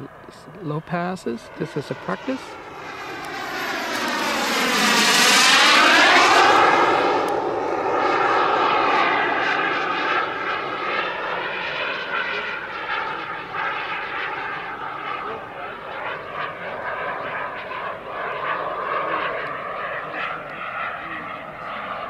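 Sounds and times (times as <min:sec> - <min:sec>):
jet engine rush: 0:00.0 - 0:22.0
high turbine whistle: 0:01.5 - 0:15.5.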